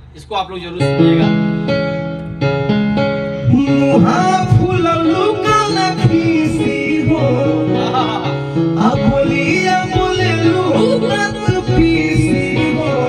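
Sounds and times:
keyboard accompaniment: 0.0s - 13.0s
man singing into a microphone: 3.4s - 13.0s.

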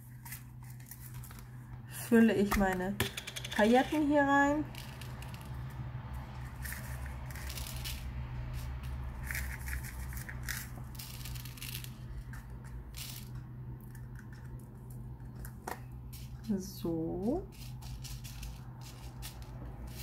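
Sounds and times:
steady low hum: 0.0s - 20.0s
plastic sequins rattling: 3.4s - 13.4s, 17.3s - 20.0s.

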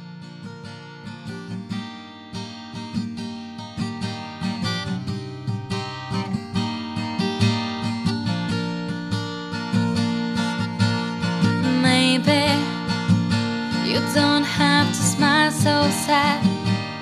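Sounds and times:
acoustic guitar strumming: 0.0s - 17.0s.

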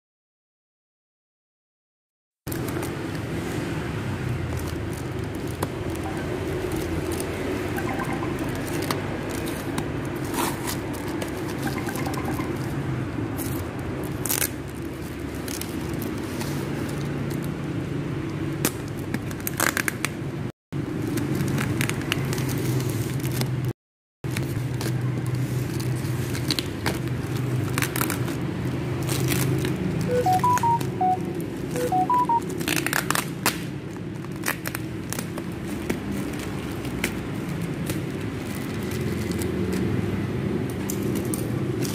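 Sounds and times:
packing tape and plastic tearing: 4.3s - 7.5s, 13.4s - 17.5s, 18.4s - 20.2s, 24.3s - 30.0s, 32.5s - 40.0s, 40.6s - 41.9s
short faint beeps: 6.1s - 6.4s, 7.8s - 8.8s, 11.7s - 12.7s, 30.1s - 32.4s.

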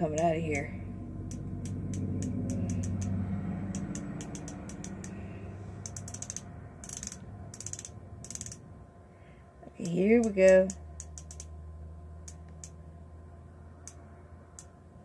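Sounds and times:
ratchet clicking: 1.3s - 5.2s, 5.8s - 8.6s, 9.8s - 11.5s.

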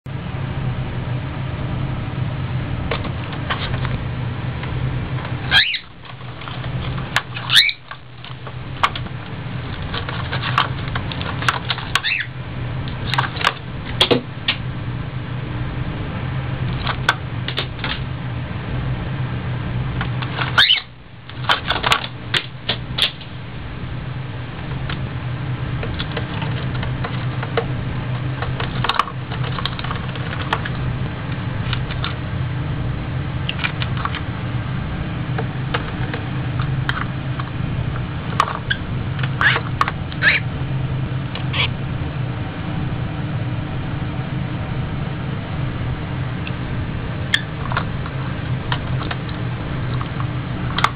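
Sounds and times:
steady low hum: 0.0s - 50.9s
cockatiel squeaks: 5.5s - 6.0s, 7.4s - 7.9s, 11.9s - 12.4s, 20.4s - 20.9s, 39.4s - 39.6s, 40.2s - 40.4s, 41.5s - 41.8s, 47.3s - 47.5s.

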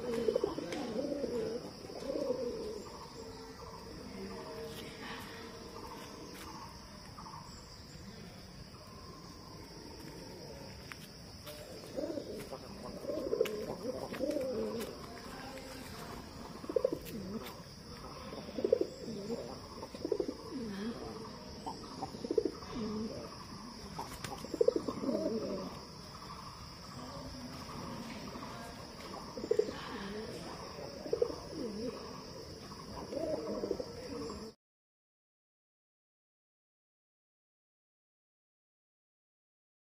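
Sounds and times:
pigeons cooing: 0.0s - 4.0s, 11.4s - 34.6s
steady high-pitched hiss: 0.0s - 34.5s.

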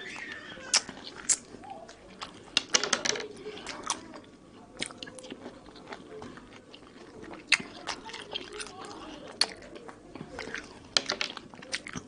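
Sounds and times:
chewing orange segments: 0.0s - 2.6s, 3.4s - 12.0s
wet mouth clicks: 0.7s - 1.5s.

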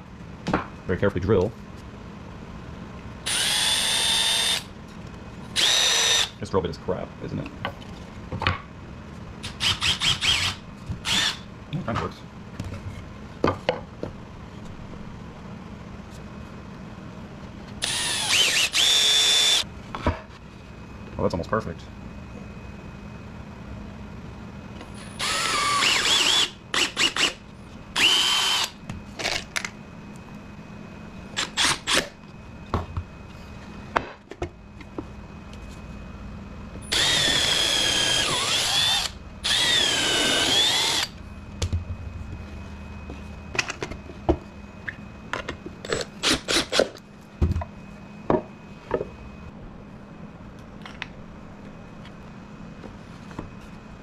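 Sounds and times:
cordless drill whining into wood: 3.3s - 4.7s, 5.6s - 6.3s, 9.5s - 11.4s, 17.8s - 19.6s, 25.1s - 27.4s, 28.0s - 28.7s, 36.8s - 41.1s.

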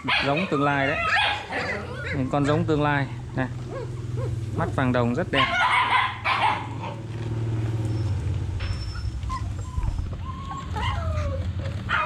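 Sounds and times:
puppies whimpering: 0.0s - 4.3s, 7.9s - 12.0s.

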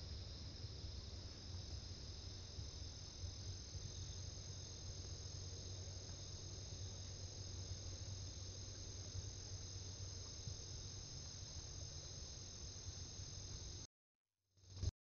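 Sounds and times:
crickets and insects trilling: 0.0s - 13.9s
low steady hum: 0.0s - 13.9s.

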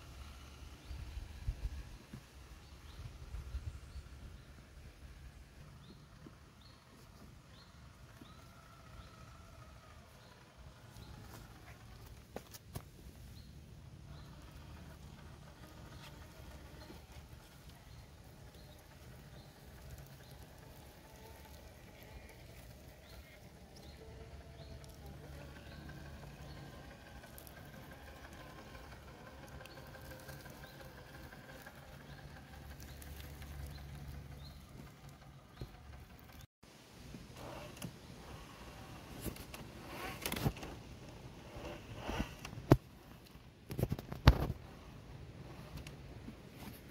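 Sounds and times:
low steady hum: 0.0s - 46.9s
toy truck crunching over forest floor: 14.1s - 36.5s, 37.3s - 44.7s.

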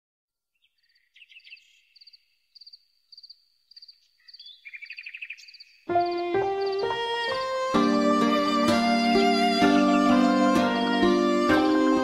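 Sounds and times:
music: 5.9s - 12.0s.

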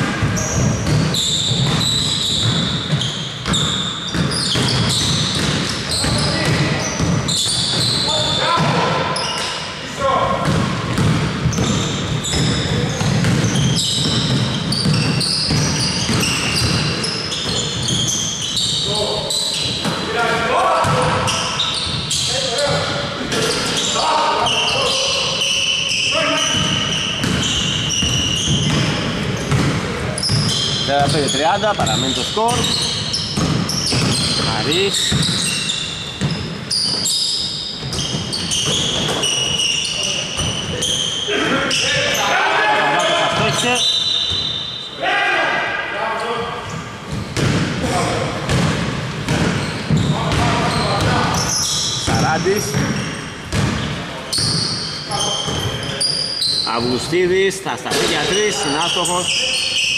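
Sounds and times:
basketball bouncing: 0.0s - 8.0s, 10.4s - 18.2s, 26.5s - 37.1s, 37.7s - 39.7s, 47.0s - 51.4s, 52.0s - 54.7s
sneakers squeaking on court floor: 0.0s - 45.0s, 46.2s - 59.9s.

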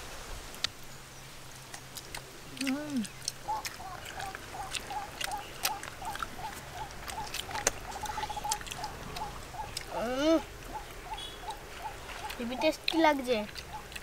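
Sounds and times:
people eating with hands: 1.5s - 14.0s
small animal chirping: 1.7s - 14.0s
rising and falling animal call: 2.9s - 12.6s.

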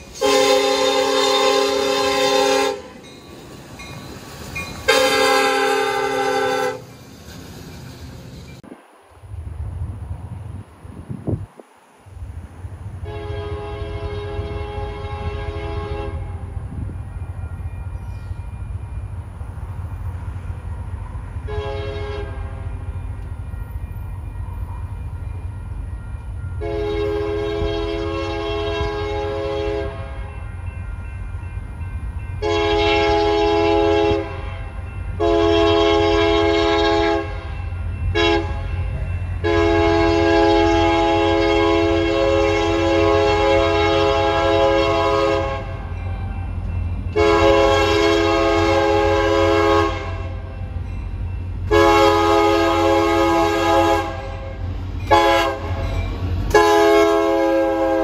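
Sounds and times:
train rumbling: 0.0s - 58.0s
locomotive air horn blasts: 0.1s - 3.0s, 4.9s - 6.9s, 13.0s - 16.5s, 21.4s - 22.6s, 26.6s - 30.3s, 32.4s - 38.7s, 39.4s - 45.9s, 47.1s - 50.5s, 51.7s - 55.9s, 56.5s - 58.0s.

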